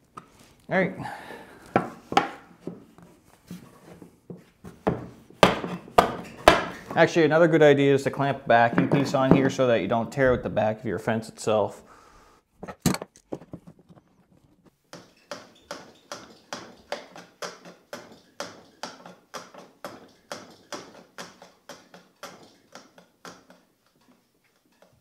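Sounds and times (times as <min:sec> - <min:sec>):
hand plane shaving wood: 0:15.0 - 0:23.6.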